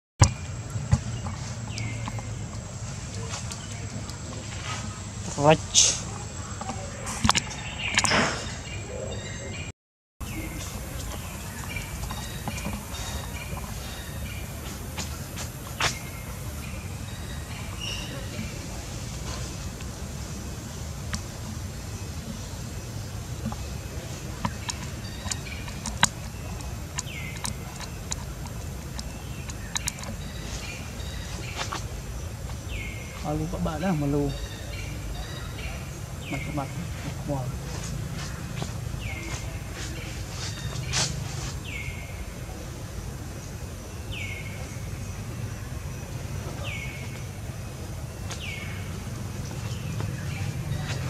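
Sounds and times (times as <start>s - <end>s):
bird calling: 0.2s - 20.5s, 21.1s - 42.7s
monkey chewing wetly: 23.3s - 31.9s.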